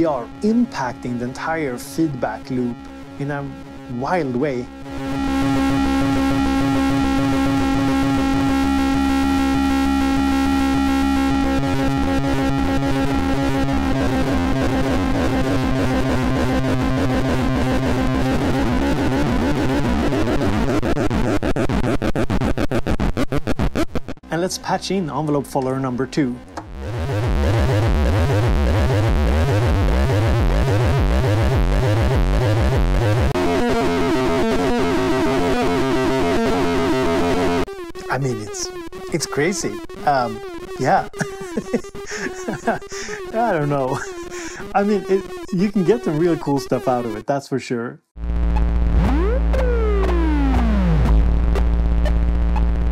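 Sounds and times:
steady droning feedback tone: 0.0s - 20.7s
high warbling electronic loop: 0.0s - 22.7s, 26.3s - 47.2s, 48.6s - 51.1s
stuttering rhythmic low buzz: 0.0s - 47.2s, 48.2s - 52.9s
mixer feedback noise with bass pulses: 0.0s - 47.3s, 48.2s - 52.9s.

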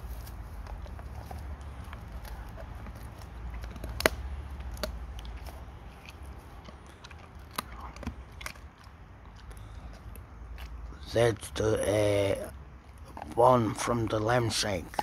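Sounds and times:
dog gnawing bone: 0.0s - 15.0s.

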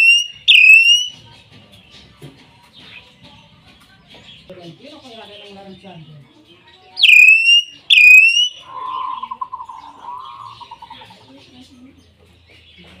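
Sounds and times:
lower wavering pulsing bird call: 0.0s - 1.2s, 7.0s - 11.0s
myna bird whistles: 0.0s - 1.2s, 7.0s - 10.9s.

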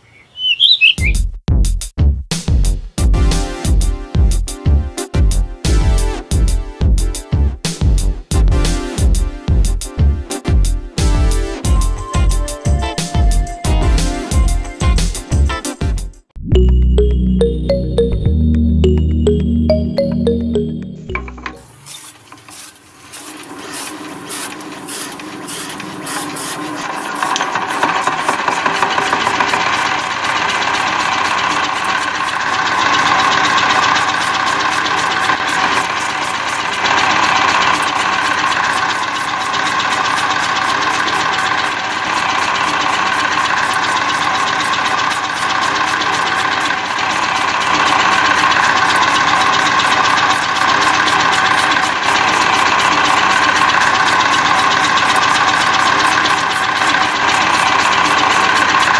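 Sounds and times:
chaff cutter chopping grass: 21.2s - 58.9s
model diesel engine knocking: 26.8s - 58.9s.

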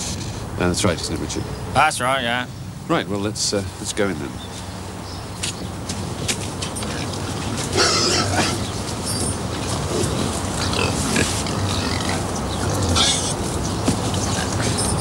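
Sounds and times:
pigs squealing and grunting: 7.7s - 8.7s, 9.8s - 13.4s.

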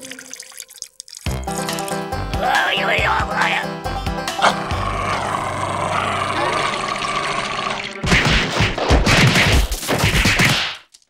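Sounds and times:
rapid clatter of bangs and crashes: 8.0s - 11.0s.

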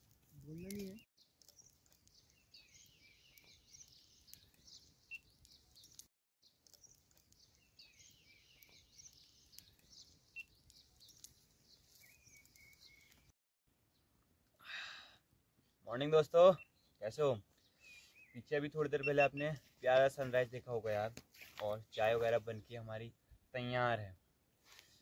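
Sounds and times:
small birds chirping: 0.0s - 14.2s, 15.6s - 23.0s.

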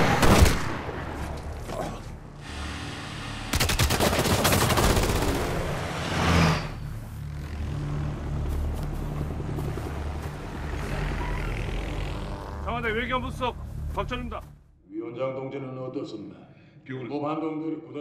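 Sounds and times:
vehicle engine drone: 2.1s - 3.8s, 4.7s - 14.8s
helicopter: 2.4s - 12.7s.

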